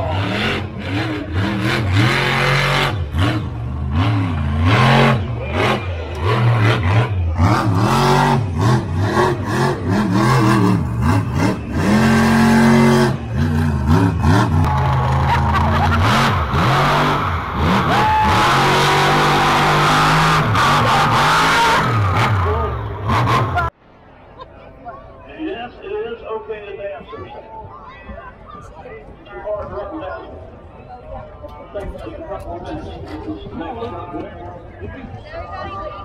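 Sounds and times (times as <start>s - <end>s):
monster truck engines revving: 0.0s - 23.8s.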